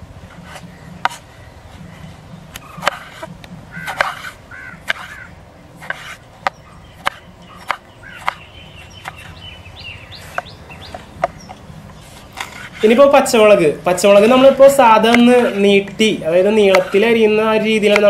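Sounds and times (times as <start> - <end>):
birds calling: 0.0 - 18.0
knife chopping on wooden board: 2.5 - 9.4, 16.6 - 17.1.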